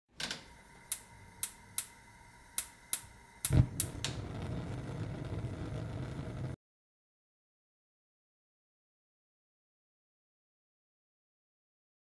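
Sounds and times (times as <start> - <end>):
gas igniter clicking: 0.2 - 5.4
gas igniting with a puff: 0.6 - 6.6
burner flame rushing: 0.8 - 6.6.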